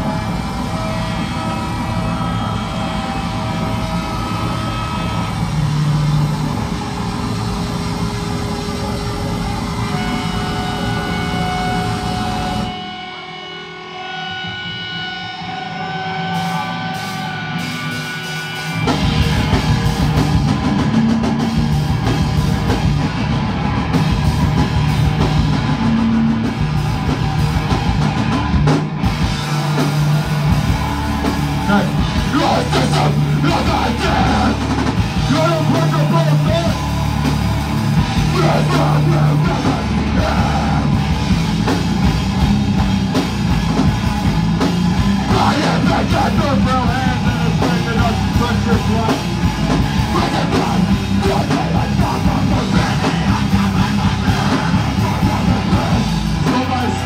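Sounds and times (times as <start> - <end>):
ringing guitar tones: 0.0 - 45.4
heavy band playing: 0.0 - 57.0
shouted vocals: 29.7 - 37.0, 38.0 - 41.4, 45.2 - 57.0.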